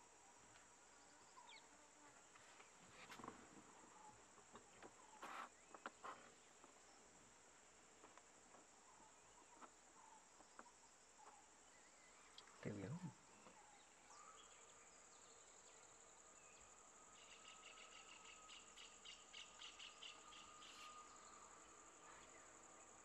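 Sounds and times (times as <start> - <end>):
faint clicks and chirps: 4.3 - 6.8, 8.0 - 13.8.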